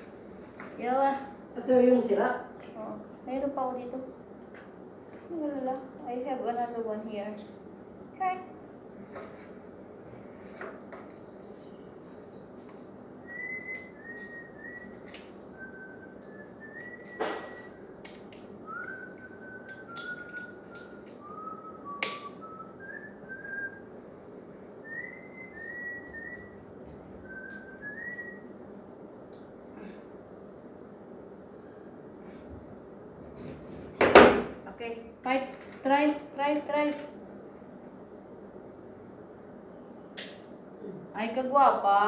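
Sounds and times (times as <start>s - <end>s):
person whistling a tune: 13.3s - 17.8s, 18.7s - 23.8s, 24.8s - 26.6s, 27.2s - 28.4s.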